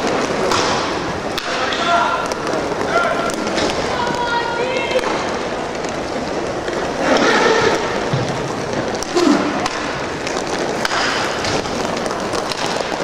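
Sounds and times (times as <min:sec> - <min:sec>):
hockey sticks and puck clacking: 0:00.0 - 0:13.0
skate wheels rolling and scraping: 0:00.0 - 0:13.0
players shouting: 0:01.3 - 0:05.5.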